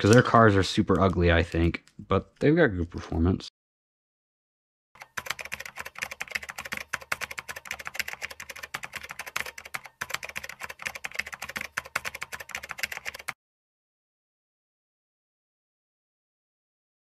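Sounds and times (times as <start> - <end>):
rapid dense clicking: 5.0 - 13.4.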